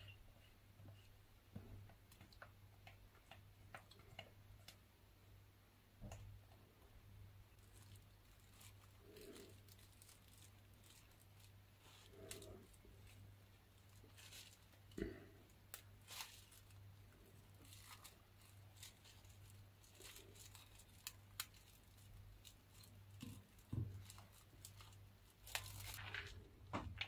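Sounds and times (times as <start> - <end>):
cling film crinkling: 7.5 - 27.0.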